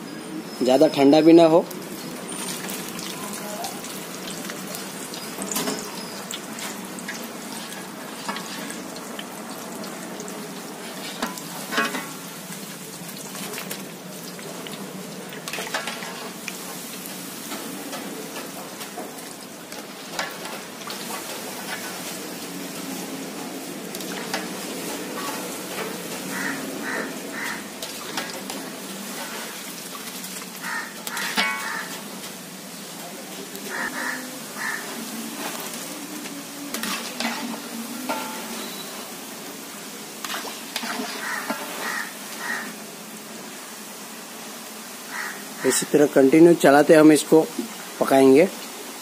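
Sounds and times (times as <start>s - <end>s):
dough sizzling in hot oil: 0.0s - 49.0s
skimmer scraping pan: 24.0s - 29.8s, 31.1s - 32.1s, 36.7s - 39.0s, 40.2s - 42.7s.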